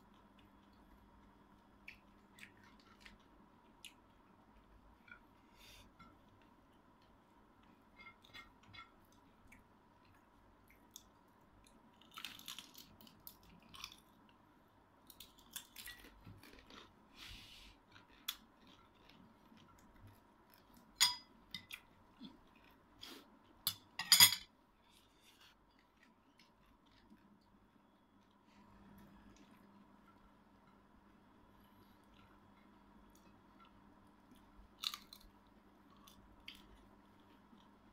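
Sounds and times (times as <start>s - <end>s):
chewing: 17.8s - 20.9s.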